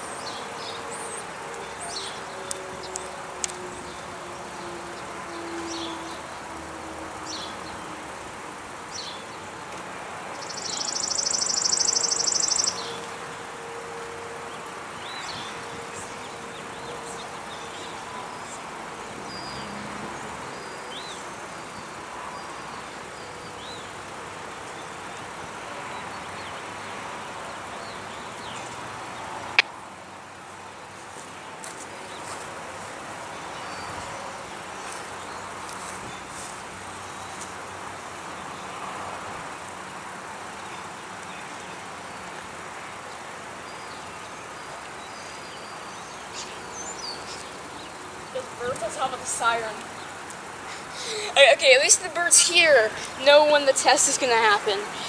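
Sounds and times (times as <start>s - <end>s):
distant traffic hum: 0.0s - 55.0s
bird chirps: 10.4s - 12.9s.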